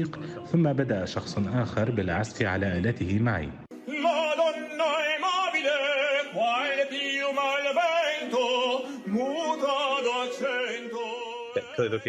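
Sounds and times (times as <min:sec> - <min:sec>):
operatic tenor singing: 0:03.7 - 0:12.0.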